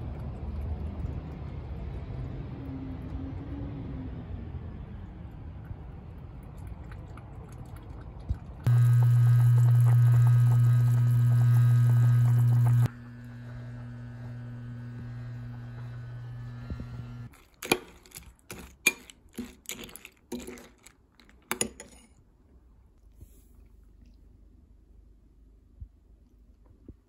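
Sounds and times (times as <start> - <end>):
appliance electrical hum: 8.2 - 22.1.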